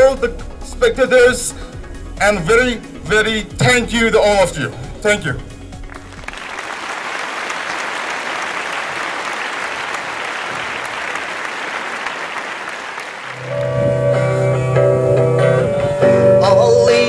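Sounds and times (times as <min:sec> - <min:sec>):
crowd applauding: 0:05.7 - 0:14.3
guitar music: 0:13.4 - 0:17.0.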